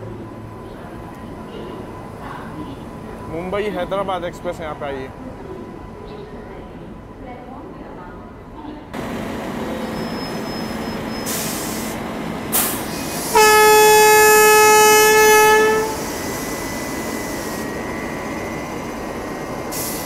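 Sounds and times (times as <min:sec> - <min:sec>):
train rumbling past: 0:00.0 - 0:20.0
locomotive horn: 0:12.6 - 0:16.3.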